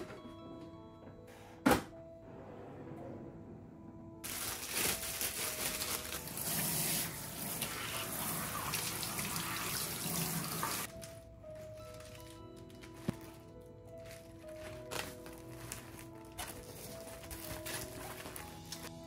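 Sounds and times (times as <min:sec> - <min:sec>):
soft background music: 0:00.0 - 0:19.0
faucet spraying water: 0:06.2 - 0:10.9.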